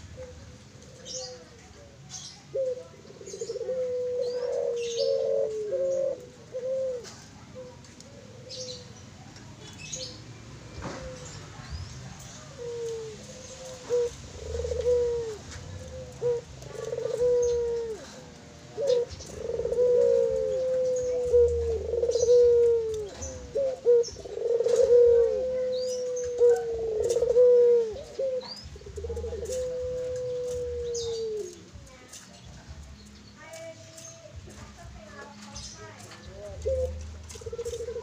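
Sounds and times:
dove cooing: 0.0 - 10.2, 10.8 - 38.0.

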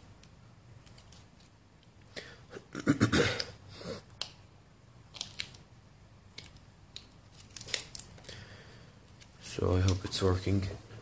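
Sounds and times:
plastic clicking and crinkling: 6.3 - 8.4.

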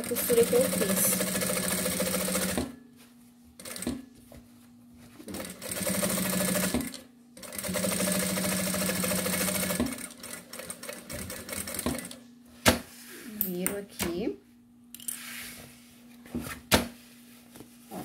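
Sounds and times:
sewing machine stitching: 0.0 - 2.6, 5.3 - 12.2.

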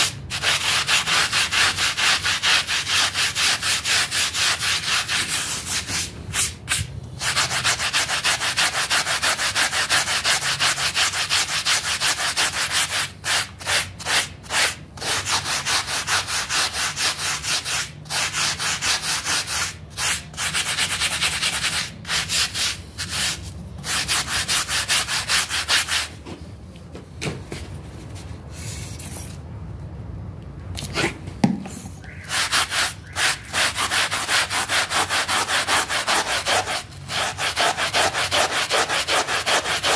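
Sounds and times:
brush scrubbing a wet rug: 32.4 - 39.9.

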